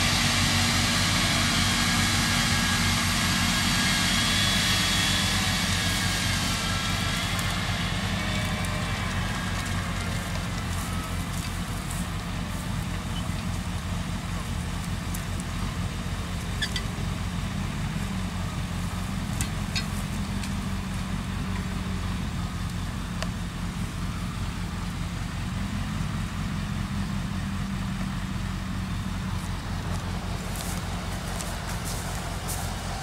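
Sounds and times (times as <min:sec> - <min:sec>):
diesel engine idling: 0:00.0 - 0:33.0.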